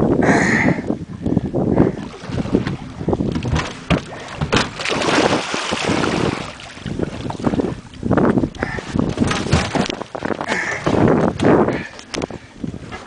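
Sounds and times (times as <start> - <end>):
wind buffeting microphone: 0.0 - 13.0
water splashing against boat: 1.1 - 13.0.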